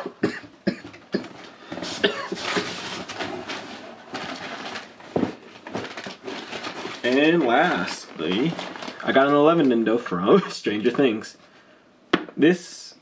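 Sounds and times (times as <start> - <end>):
packaging rustling and crinkling: 1.3 - 10.0.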